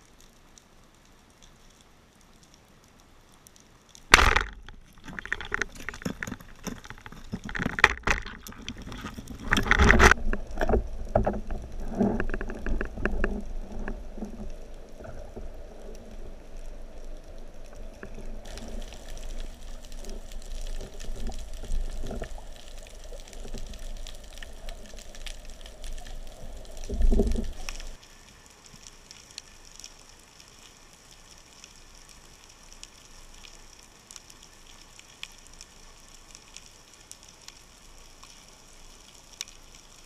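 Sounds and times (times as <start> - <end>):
underwater water noise: 0.0 - 40.0
speargun firing underwater: 4.1 - 5.6
knocks and rattles: 4.1 - 13.4.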